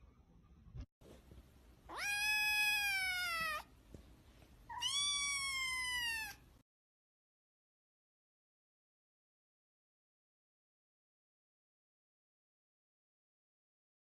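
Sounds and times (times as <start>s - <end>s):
kitten meowing: 1.9s - 3.7s, 4.7s - 6.4s.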